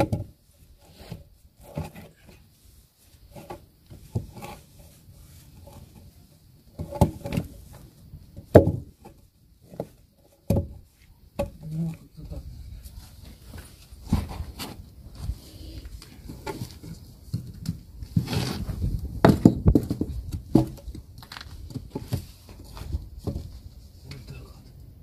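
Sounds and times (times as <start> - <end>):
wooden log knocking on brick: 8.4 - 8.9, 10.5 - 10.8, 19.2 - 22.2.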